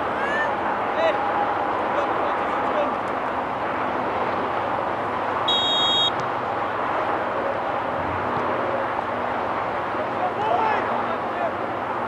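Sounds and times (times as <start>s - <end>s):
open-air field noise: 0.0s - 12.0s
referee's whistle blast: 5.5s - 6.1s.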